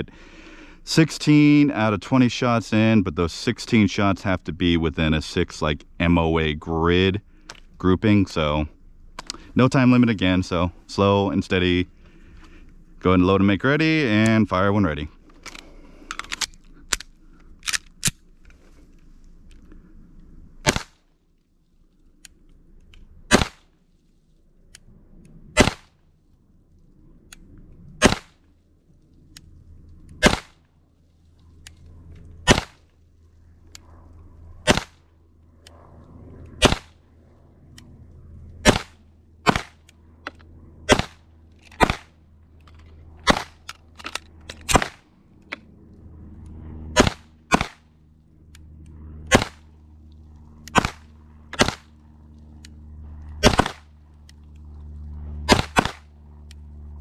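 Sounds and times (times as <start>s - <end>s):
pistol shots: 20.6s - 21.0s, 23.3s - 23.6s, 25.6s - 25.9s, 28.0s - 28.4s, 30.2s - 30.6s, 32.4s - 32.8s, 34.6s - 35.0s, 36.6s - 36.9s, 38.6s - 39.8s, 40.9s - 41.2s, 41.8s - 42.1s, 43.2s - 43.7s, 44.6s - 45.0s, 47.0s - 47.8s, 49.3s - 49.7s, 50.7s - 52.0s, 53.4s - 53.9s, 55.5s - 56.1s.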